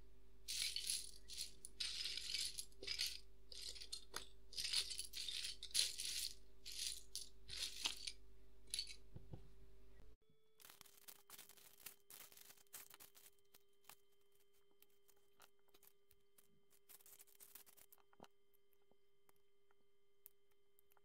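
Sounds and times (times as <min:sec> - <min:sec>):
shaker rattle swishing: 0:00.5 - 0:09.0.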